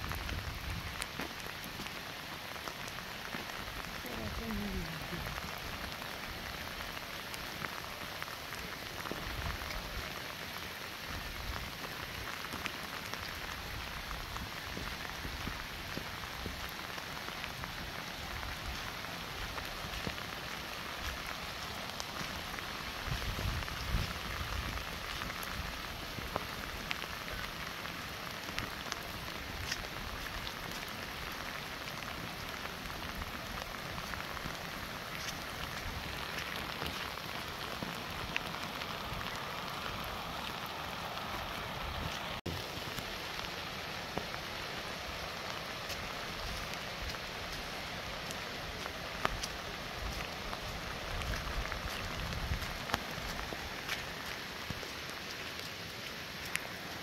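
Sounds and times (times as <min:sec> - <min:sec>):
steady rain falling: 0:00.0 - 0:57.0.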